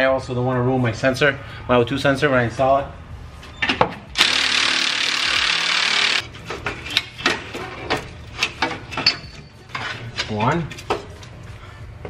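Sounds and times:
cordless ratchet running: 4.2 - 6.2.

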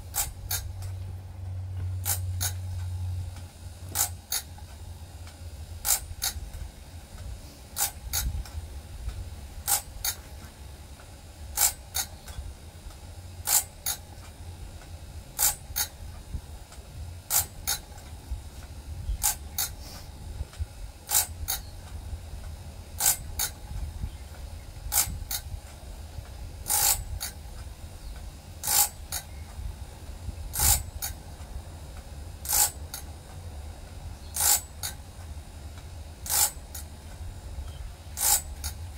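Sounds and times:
low motor hum: 0.0 - 38.9
ratchet feed double click: 0.1 - 0.9, 2.0 - 4.7, 5.3 - 10.2, 11.5 - 14.1, 15.4 - 16.0, 17.3 - 18.1, 19.2 - 22.0, 23.0 - 25.6, 26.6 - 27.4, 28.2 - 29.6, 30.5 - 31.2, 32.0 - 33.1, 34.3 - 35.0, 35.8 - 36.9, 37.6 - 38.8.

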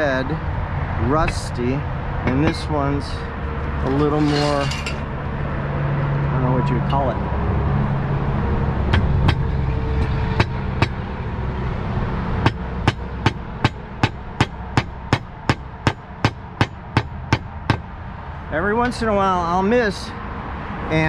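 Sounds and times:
hammer striking nails: 12.4 - 17.8.

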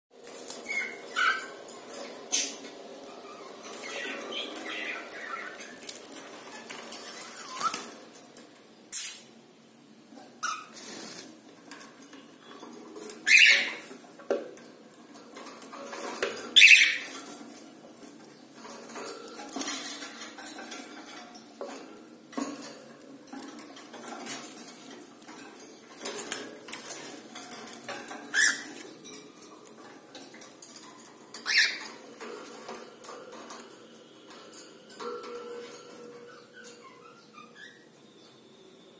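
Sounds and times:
birds scratching on wire cage: 0.2 - 9.1, 10.4 - 37.1
cockatiels chirping: 3.2 - 5.8, 13.2 - 13.8.

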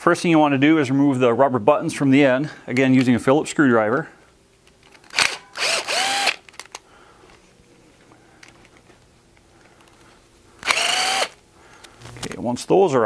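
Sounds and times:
cordless drill whirring: 5.2 - 6.5, 10.6 - 12.3.

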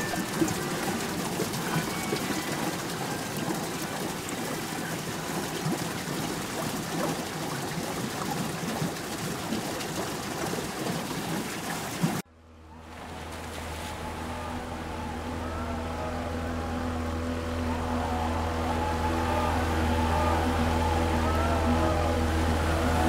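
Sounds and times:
splashing trickling water: 0.0 - 12.2, 12.9 - 16.1.

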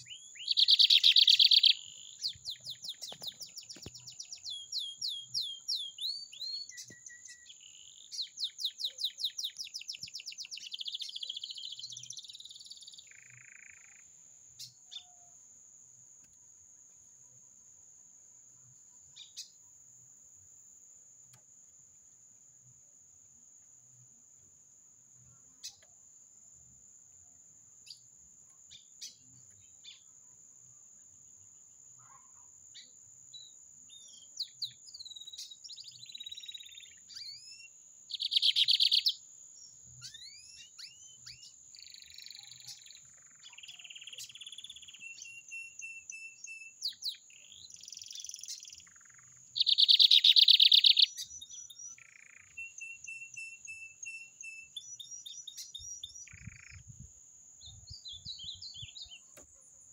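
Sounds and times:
bird singing chirps and trills: 0.0 - 15.3, 32.0 - 59.9.

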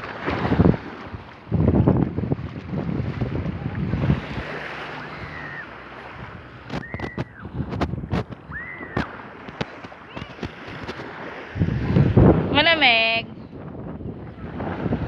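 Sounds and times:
small waves washing ashore: 0.0 - 15.0
wind buffeting microphone: 0.0 - 15.0
short high calls: 4.9 - 5.8.

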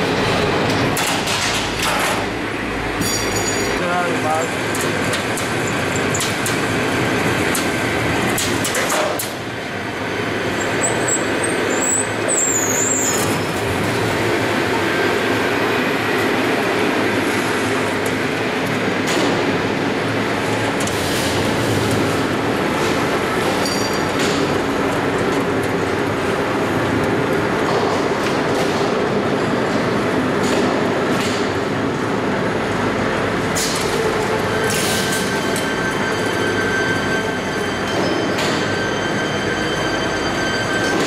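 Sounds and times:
machinery rumbling with clicks: 0.0 - 14.8, 17.2 - 41.0
high machine squeal: 10.5 - 13.5, 34.0 - 41.0.

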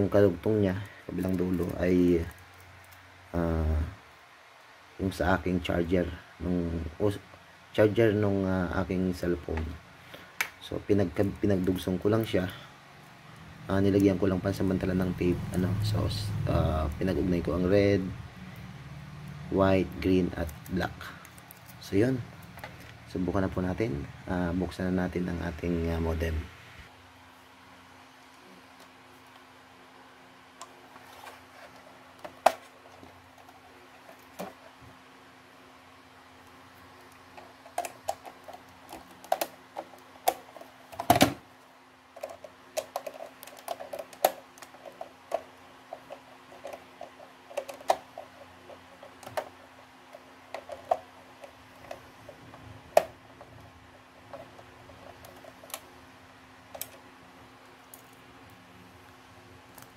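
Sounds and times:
plastic casing clicking and snapping: 37.1 - 41.4, 42.2 - 49.6.

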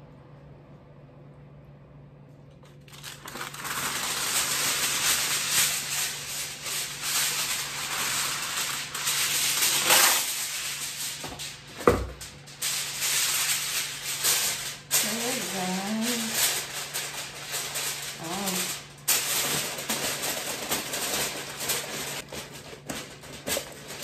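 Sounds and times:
aluminium foil crinkling: 2.6 - 24.0.

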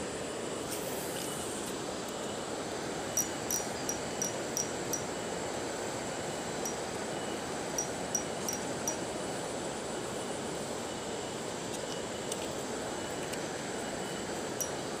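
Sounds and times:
high insect drone: 1.0 - 12.1.

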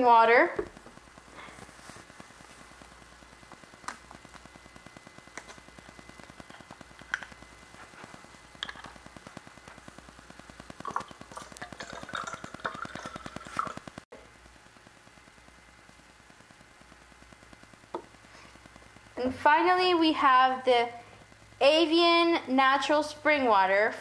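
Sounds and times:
faint steady buzz: 0.0 - 24.0
water pouring into a plastic cup: 10.8 - 13.9.

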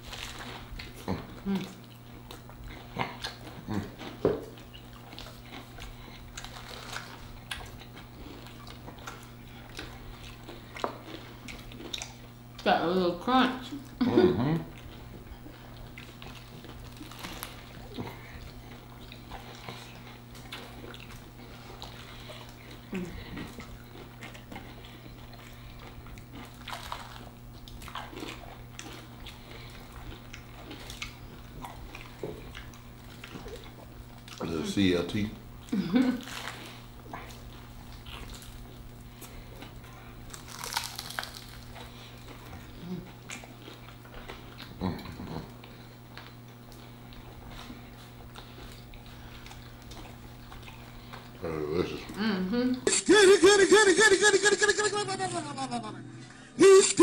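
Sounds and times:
people chewing crunchy food: 0.0 - 53.0
steady low hum: 0.0 - 57.0.

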